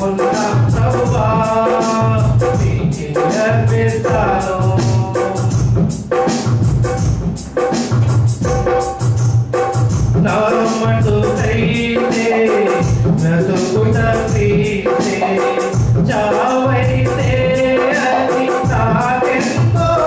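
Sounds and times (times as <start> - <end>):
men singing into microphones: 0.0 - 5.9, 10.2 - 20.0
amplified worship music: 0.0 - 20.0.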